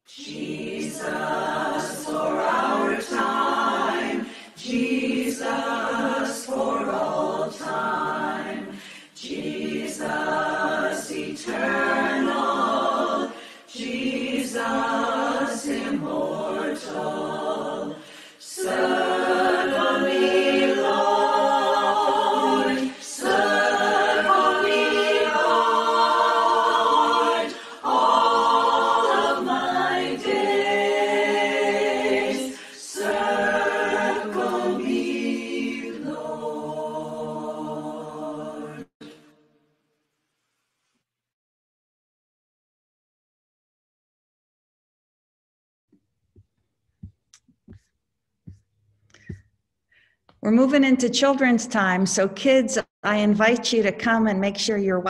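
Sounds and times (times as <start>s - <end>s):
a cappella voices singing in harmony: 0.0s - 39.3s.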